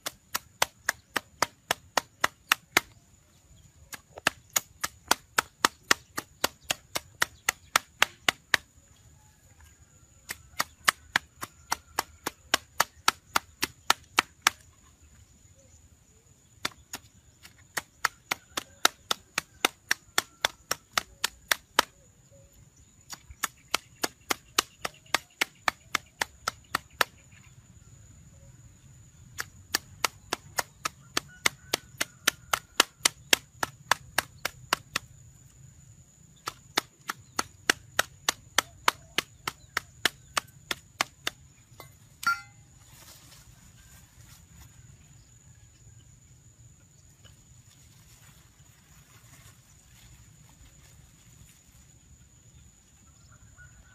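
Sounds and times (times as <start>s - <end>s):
blade chopping wood: 0.0s - 3.0s, 3.9s - 8.7s, 10.3s - 14.7s, 16.6s - 22.0s, 23.1s - 27.2s, 29.4s - 35.1s, 36.4s - 42.6s.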